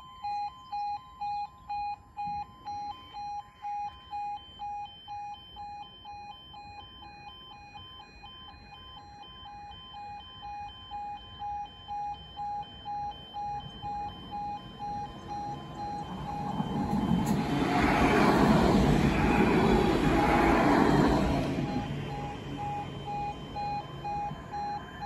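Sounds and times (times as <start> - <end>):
level crossing alarm beeping: 0.0 - 25.0
approaching tram rumble: 14.1 - 25.0.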